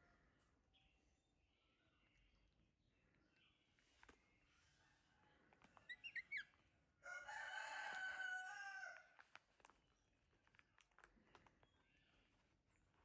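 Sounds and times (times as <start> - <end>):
monkey chirping squeaks: 5.8 - 6.5
rooster crowing: 7.0 - 9.1.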